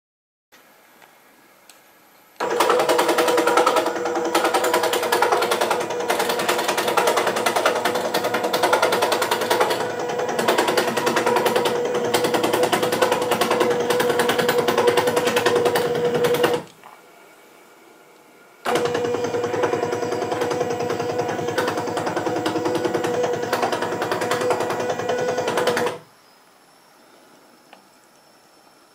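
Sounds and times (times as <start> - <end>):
panel saw rattling: 2.4 - 16.7, 18.7 - 26.0
saw motor hum: 2.4 - 16.7, 18.6 - 26.1.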